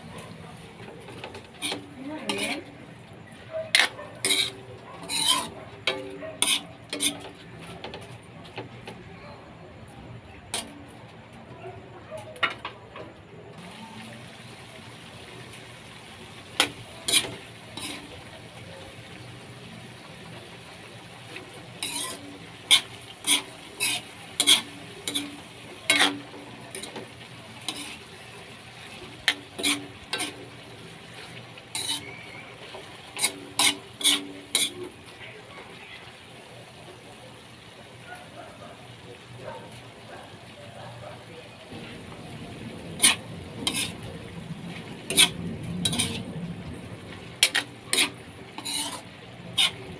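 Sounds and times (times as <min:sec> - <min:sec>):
faint pan sizzle: 0:00.0 - 0:08.1, 0:13.6 - 0:40.6, 0:41.5 - 0:49.9
metal spatula scraping wok: 0:00.8 - 0:02.8, 0:03.6 - 0:08.1, 0:10.5 - 0:10.7, 0:16.5 - 0:18.3, 0:21.3 - 0:35.2, 0:42.9 - 0:46.4, 0:47.2 - 0:49.9.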